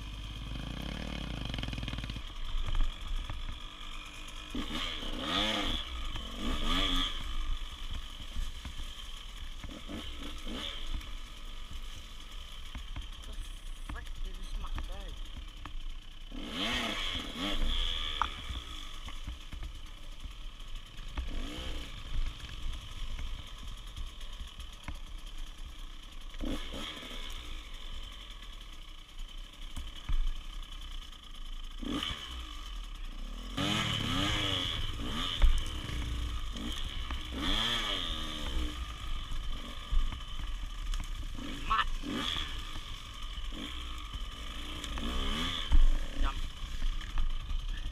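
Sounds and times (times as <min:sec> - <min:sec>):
dirt bike engine revving: 0:00.0 - 0:47.9.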